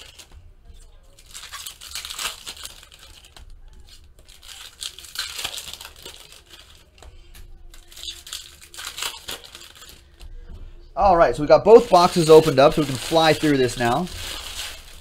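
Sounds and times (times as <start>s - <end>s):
foil wrappers crinkling and tearing: 0.0s - 10.6s, 11.3s - 15.0s.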